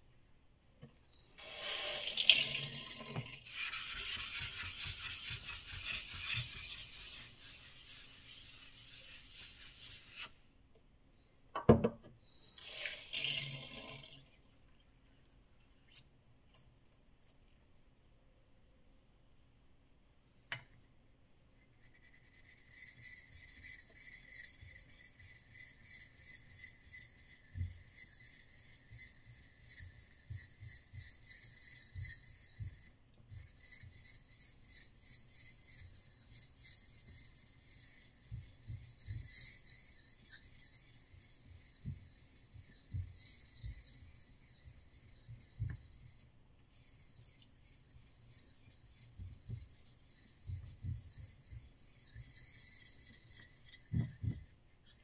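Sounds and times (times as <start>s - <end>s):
plane blade scraping on whetstone: 3.5s - 10.4s.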